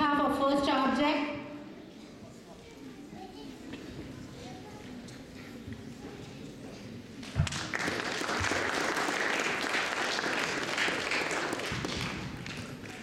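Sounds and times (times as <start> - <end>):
audience clapping: 7.2 - 13.0.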